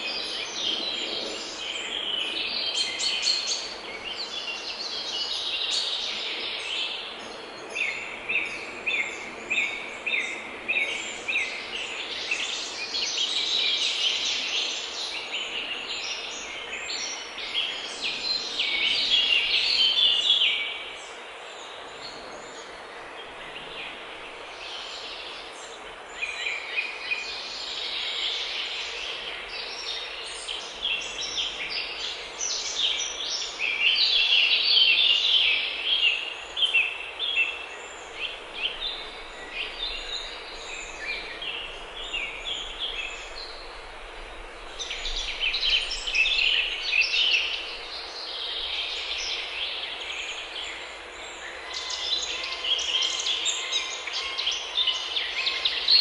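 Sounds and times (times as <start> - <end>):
birds singing and chattering: 0.0 - 56.0.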